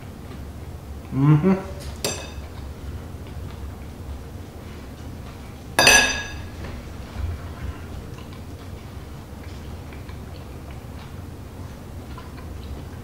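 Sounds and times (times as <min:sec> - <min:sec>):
fork clinking on plate: 0:02.0 - 0:02.5, 0:05.8 - 0:06.4.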